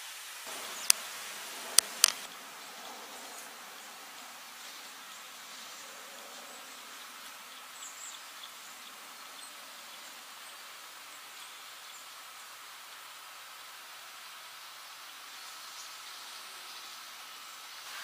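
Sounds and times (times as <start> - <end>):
faint outdoor background hiss: 0.0 - 18.0
sharp clicks: 1.8 - 2.3.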